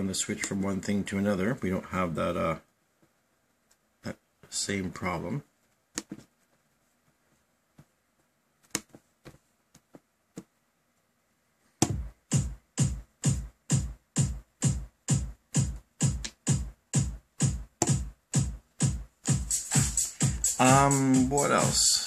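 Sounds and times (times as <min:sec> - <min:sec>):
electro house kick drum loop: 0:11.8 - 0:22.0.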